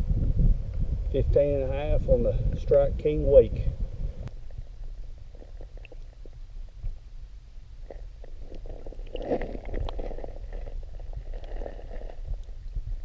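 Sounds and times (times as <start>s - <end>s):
small underwater clicks: 5.6s - 6.3s.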